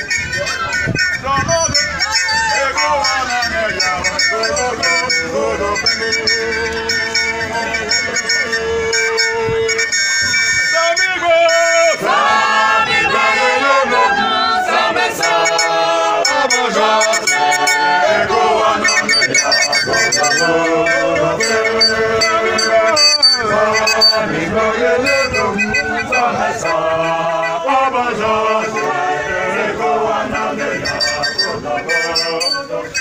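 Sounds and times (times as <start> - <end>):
choir singing: 1.4 - 9.9, 11.7 - 33.0.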